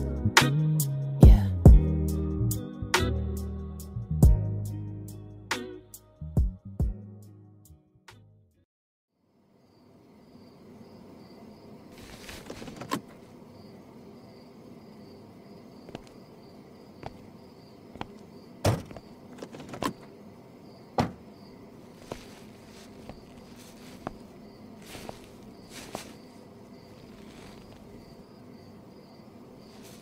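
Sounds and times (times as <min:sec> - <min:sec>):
sharp knocks and thumps: 0:18.0 - 0:20.0, 0:21.0 - 0:21.3
faint high pulsing chirping: 0:19.9 - 0:30.0.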